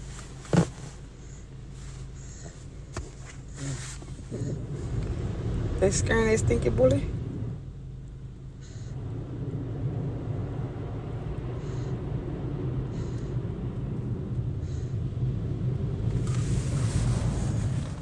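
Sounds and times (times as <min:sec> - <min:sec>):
car wash water spray rumble: 0:00.0 - 0:18.0
faint brief hisses: 0:03.2 - 0:04.5.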